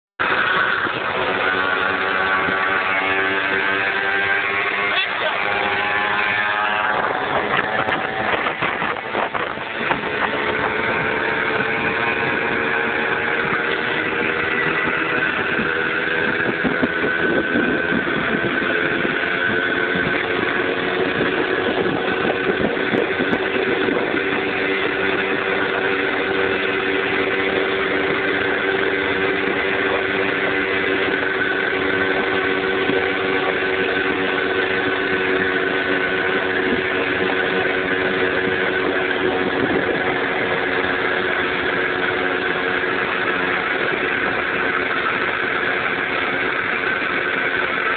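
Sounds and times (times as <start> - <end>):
road noise: 0.0 - 47.9
two-stroke moped engine running: 0.2 - 47.9.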